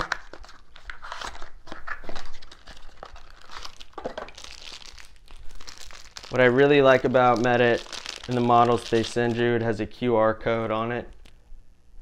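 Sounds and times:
plastic packaging crinkling: 0:00.0 - 0:09.5, 0:11.1 - 0:11.4.

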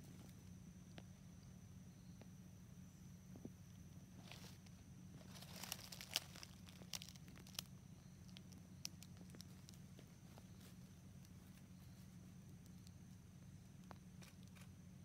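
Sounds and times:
steady low hum: 0:00.0 - 0:15.0
dry leaves crackling: 0:04.2 - 0:14.7.

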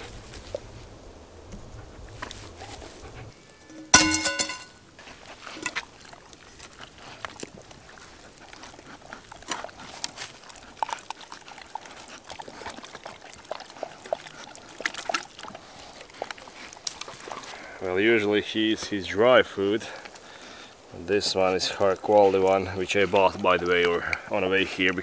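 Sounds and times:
dog chewing wet food: 0:05.0 - 0:17.5, 0:19.9 - 0:25.0.

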